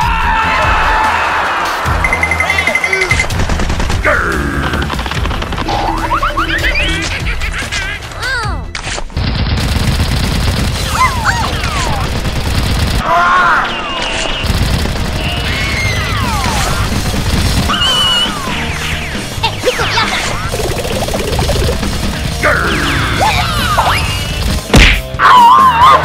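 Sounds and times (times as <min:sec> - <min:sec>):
background music: 0:00.0 - 0:09.2, 0:10.0 - 0:26.0
rapid machine-gun fire: 0:03.2 - 0:06.3, 0:09.1 - 0:13.1, 0:14.3 - 0:19.3, 0:20.5 - 0:24.7.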